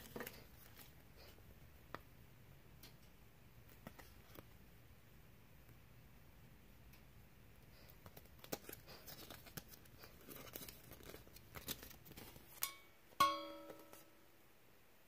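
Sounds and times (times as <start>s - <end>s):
paper and plastic crinkling: 0.0s - 1.0s, 7.9s - 12.6s
hard object ringing clink: 12.6s - 14.2s.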